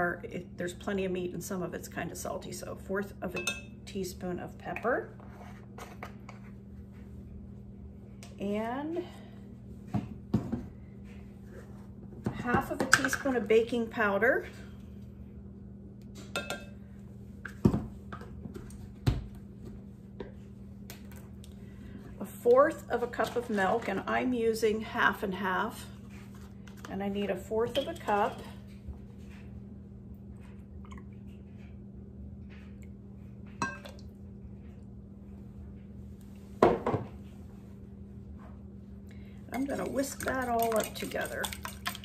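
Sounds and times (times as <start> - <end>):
steady low hum: 0.0 - 42.0
glass cup clinking on glass bowl: 3.4 - 3.7, 33.6 - 34.0.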